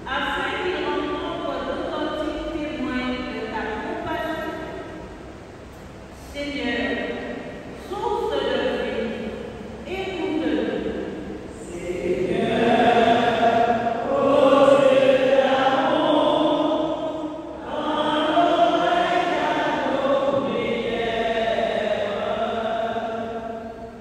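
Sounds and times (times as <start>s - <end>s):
congregation singing chanted refrain: 10.1s - 24.0s.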